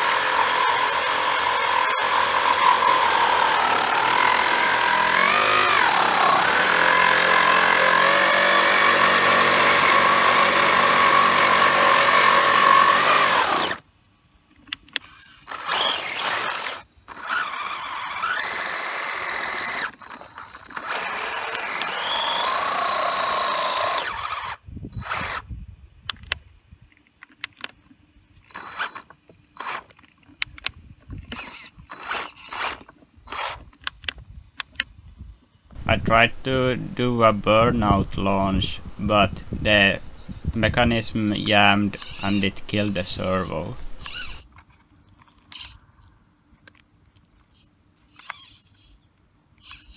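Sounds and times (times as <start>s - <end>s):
electric motor whining: 0.0s - 13.8s, 15.0s - 25.4s, 35.8s - 44.4s.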